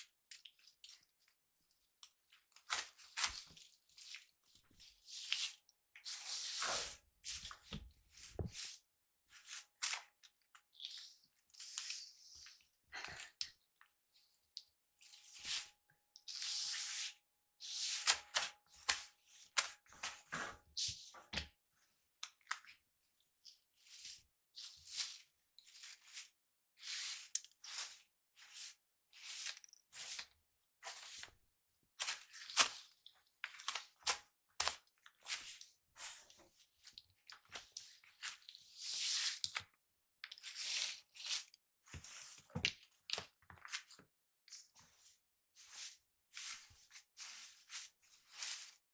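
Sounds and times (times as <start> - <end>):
broom sweeping floor: 2.7 - 10.1, 15.0 - 21.5, 23.7 - 31.4, 34.6 - 39.5, 40.4 - 42.6, 44.5 - 48.9.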